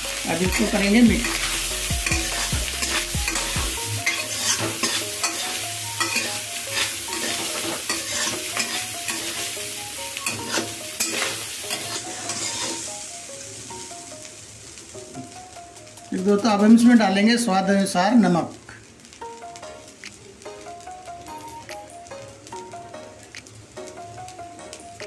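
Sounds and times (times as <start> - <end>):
frying sizzle: 0.0 - 25.0
metal spatula scraping a pan: 2.1 - 9.5, 10.2 - 12.9.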